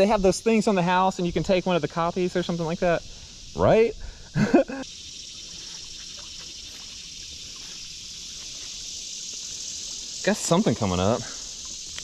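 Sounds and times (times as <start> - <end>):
insect chorus: 0.0 - 12.0
faint ticks: 11.4 - 12.0.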